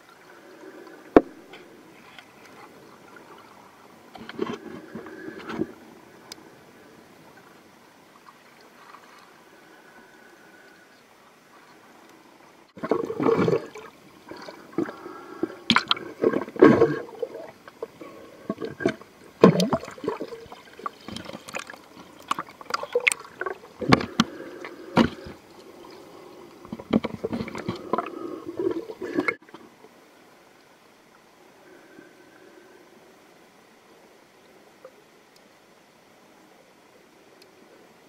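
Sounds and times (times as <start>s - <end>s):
water splashing and gurgling: 12.7s - 29.6s.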